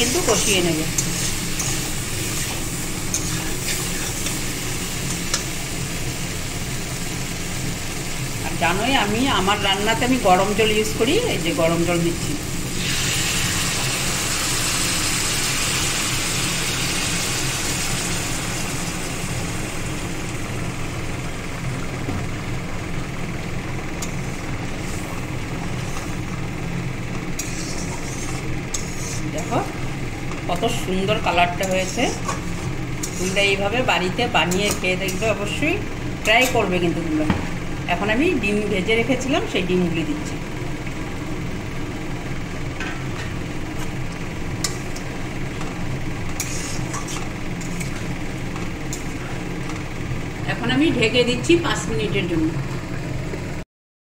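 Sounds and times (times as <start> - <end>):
low mechanical hum: 0.0 - 53.6
metal spatula scraping a wok: 0.1 - 4.4, 27.4 - 29.6, 31.6 - 33.5, 46.3 - 48.0.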